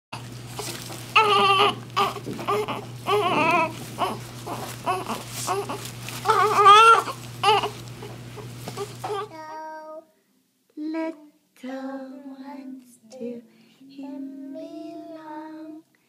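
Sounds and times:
steady low hum: 0:00.2 - 0:09.4
newborn baby crying: 0:00.6 - 0:09.5.

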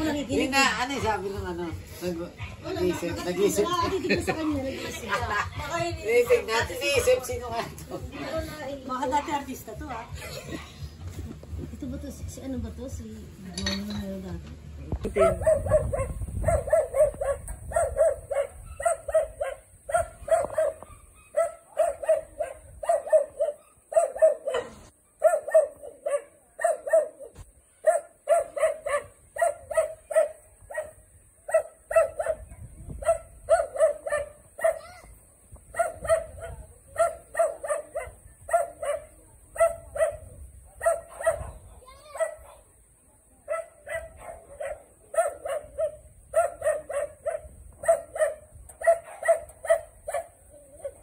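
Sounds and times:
dog barking: 0:15.0 - 0:35.0, 0:35.7 - 0:42.6, 0:43.4 - 0:51.0.

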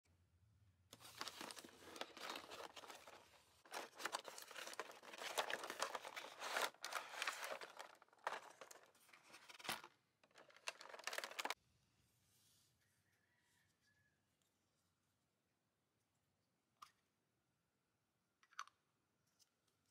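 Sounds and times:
plastic packaging crinkling: 0:01.0 - 0:11.6.

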